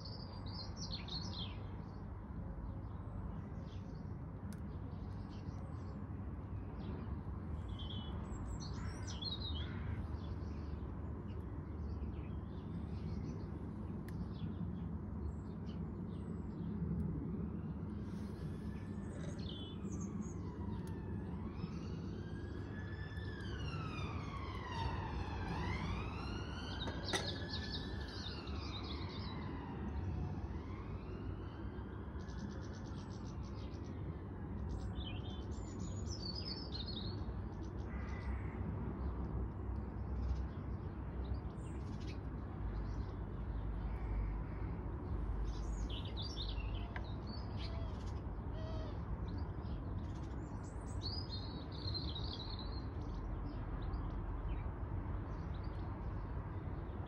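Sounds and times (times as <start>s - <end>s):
distant siren wailing: 17.4s - 32.9s.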